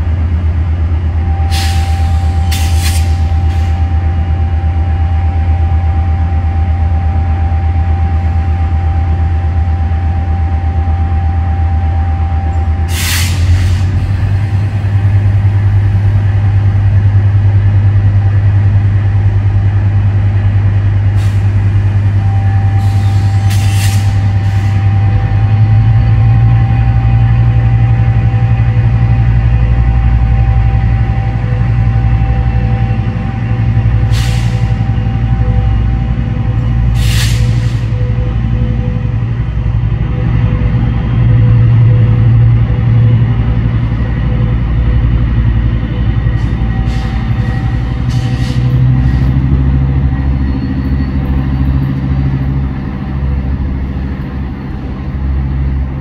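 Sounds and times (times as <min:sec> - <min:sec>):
diesel locomotive engine drone: 0:00.0 - 0:56.0
thin steady whine: 0:00.0 - 0:56.0
air hissing: 0:12.9 - 0:14.0, 0:22.8 - 0:24.8, 0:34.1 - 0:34.8, 0:36.9 - 0:37.9.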